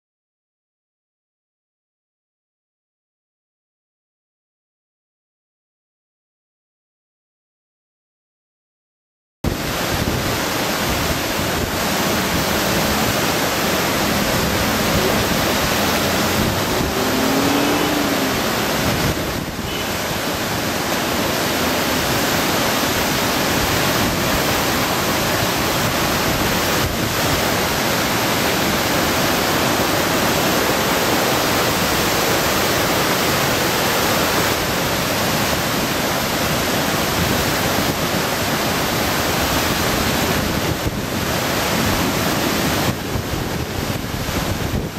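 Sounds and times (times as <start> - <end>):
river water rushing: 9.5 - 44.9.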